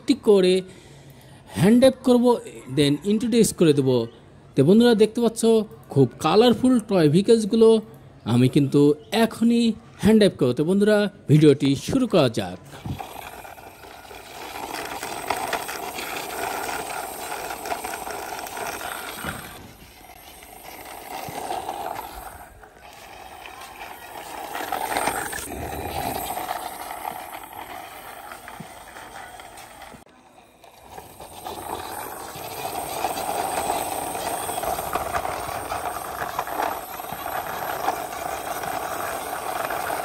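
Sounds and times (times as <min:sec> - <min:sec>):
toy truck wheels rattling on concrete: 0:12.4 - 0:40.0.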